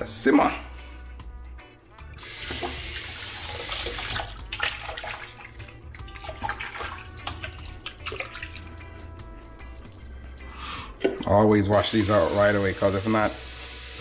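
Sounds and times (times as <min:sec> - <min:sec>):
tap running into a sink: 0:02.2 - 0:04.8
water splashing and swishing: 0:02.5 - 0:11.3.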